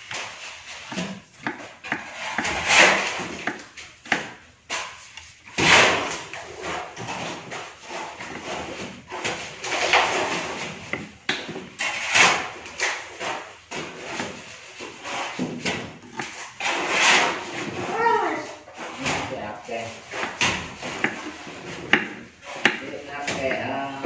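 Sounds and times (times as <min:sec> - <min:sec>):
kitchen containers and utensils clattering: 0:00.0 - 0:24.0.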